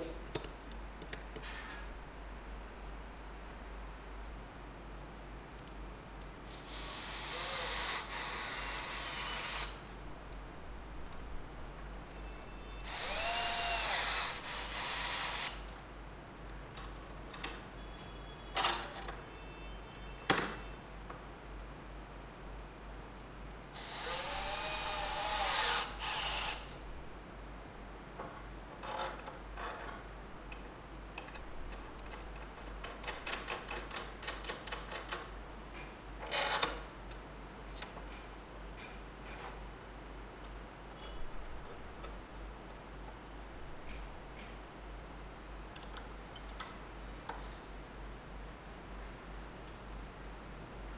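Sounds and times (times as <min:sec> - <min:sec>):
cordless drill boring into steel: 0:06.5 - 0:09.8, 0:12.8 - 0:15.6, 0:23.8 - 0:26.7.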